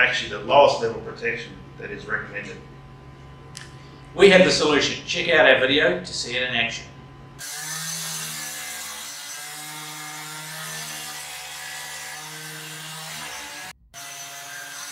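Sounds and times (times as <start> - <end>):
power saw cutting brick: 7.4 - 14.9.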